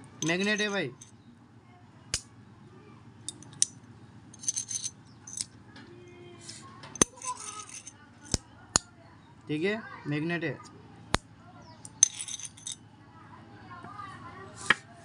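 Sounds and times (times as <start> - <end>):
coins clicking: 0.2 - 1.1, 3.3 - 3.7, 4.4 - 5.5, 7.0 - 8.4, 11.9 - 12.8
coins clinking and scraping: 0.2 - 1.1, 3.3 - 3.7, 4.4 - 5.5, 7.0 - 8.4, 11.9 - 12.8.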